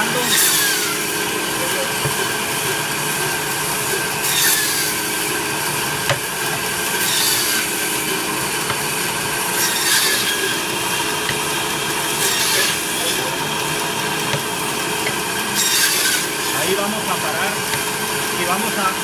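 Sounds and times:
band saw motor hum: 0.0 - 19.0
band saw blade cutting bone: 0.2 - 1.3, 1.9 - 18.8.

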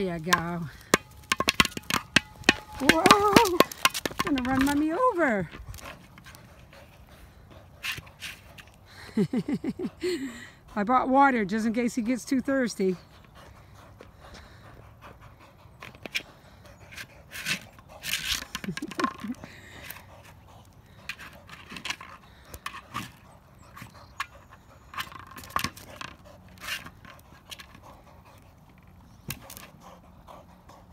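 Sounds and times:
ball knocks and scrapes on asphalt: 0.0 - 6.5, 7.8 - 8.7, 16.9 - 20.4, 21.1 - 24.3, 24.9 - 27.8, 28.7 - 29.8
dog panting: 0.0 - 30.9.

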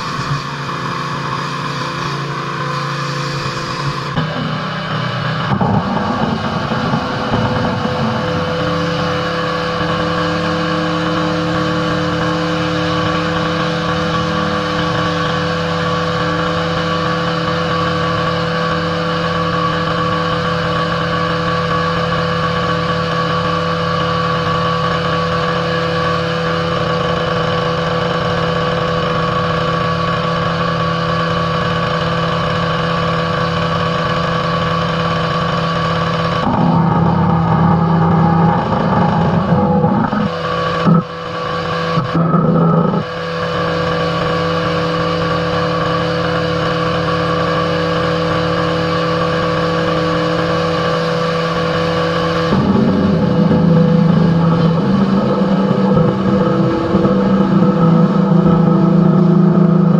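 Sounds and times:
pressure washer engine running: 0.0 - 59.9.

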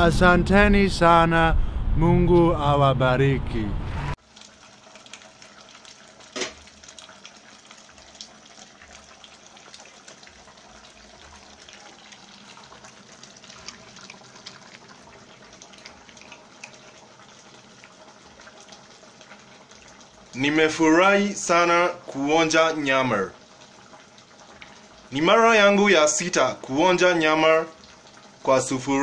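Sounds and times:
pot bubbling and crackling: 4.2 - 29.0.

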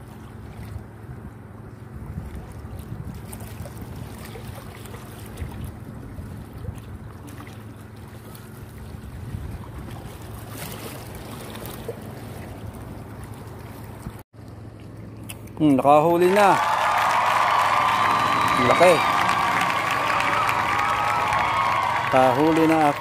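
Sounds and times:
wind rumbling on microphone: 0.4 - 7.2, 8.8 - 10.6, 16.6 - 23.0
sea washing against rocks: 16.3 - 23.0.

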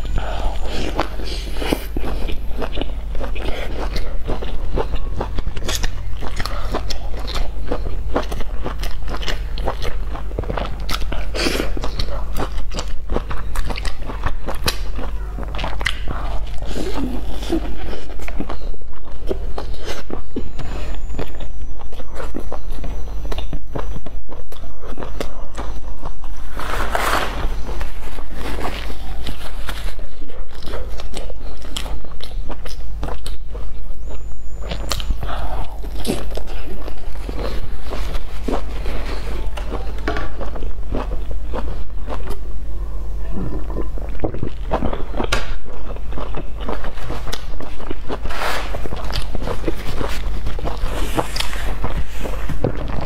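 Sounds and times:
biting and chewing sandwich: 0.0 - 53.0
steady low hum: 0.0 - 53.0
crisp bread crust crackles: 24.9 - 32.3, 43.8 - 53.0.

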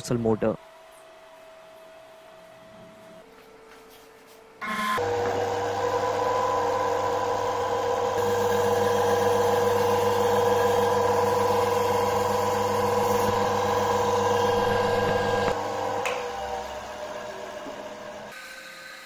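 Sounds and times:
electric motor whine and hum: 4.6 - 19.0.

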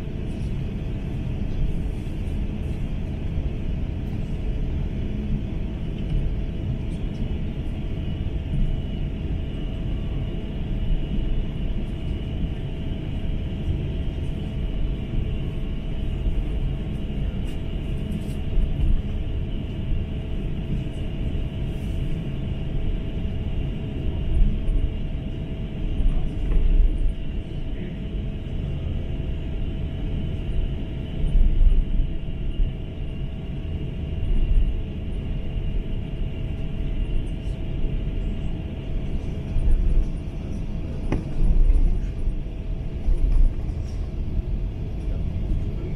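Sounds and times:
aircraft cabin rumble: 0.0 - 45.9.

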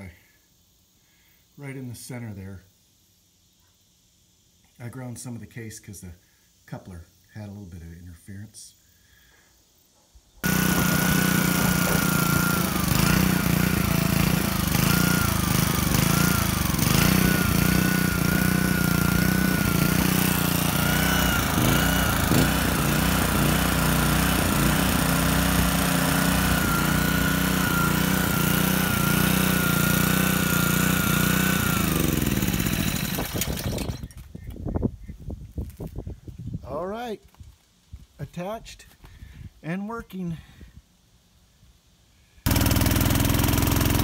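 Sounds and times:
small engine running: 10.4 - 34.2, 42.5 - 44.0.

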